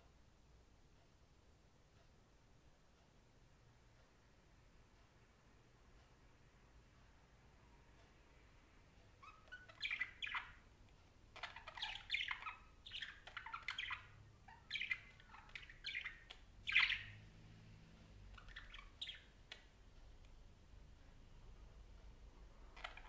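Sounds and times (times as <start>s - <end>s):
budgerigar chirps and squawks: 9.2s - 10.6s, 11.4s - 17.2s, 18.3s - 19.7s, 22.7s - 23.0s.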